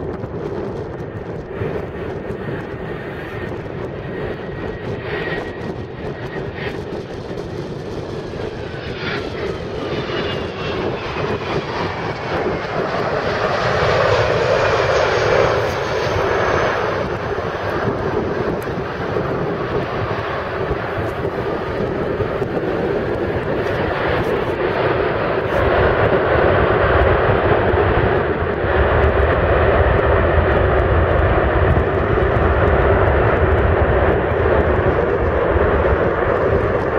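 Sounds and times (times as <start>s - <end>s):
jet engine whine and roar: 0.0s - 36.9s
low rumble of jet rolling out: 0.0s - 36.9s.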